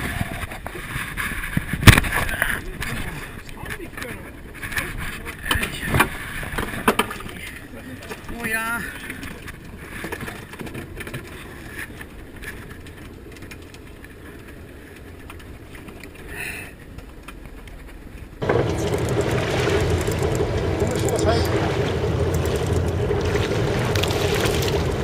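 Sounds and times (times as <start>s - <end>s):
boat engine rumbling: 18.3s - 25.0s
water wash: 18.4s - 25.0s.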